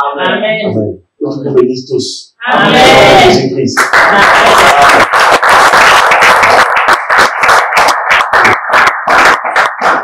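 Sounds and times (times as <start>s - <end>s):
congregation applauding: 3.8s - 10.0s.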